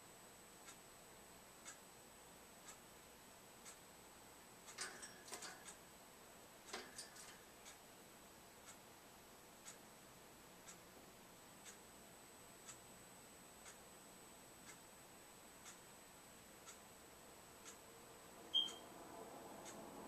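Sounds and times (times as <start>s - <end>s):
faint ticking: 10.5s - 12.0s, 13.5s - 15.0s, 15.6s - 17.9s.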